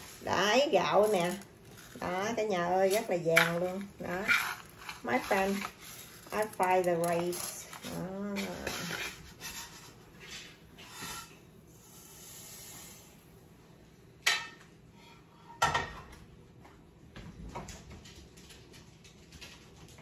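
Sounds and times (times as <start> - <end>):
utensil scraping in pot: 0.0 - 13.2.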